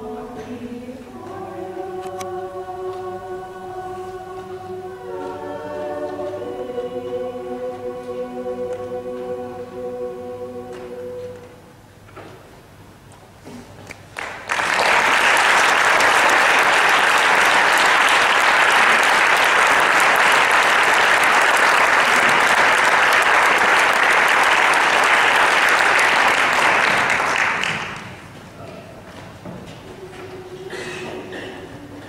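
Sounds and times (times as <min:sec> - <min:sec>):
audience applauding: 0:14.1 - 0:28.3.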